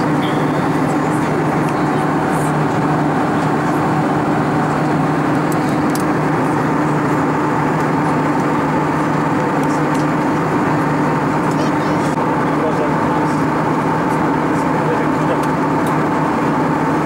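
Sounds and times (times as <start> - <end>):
airflow rush: 0.0 - 16.9
jet engine hum: 0.0 - 17.0.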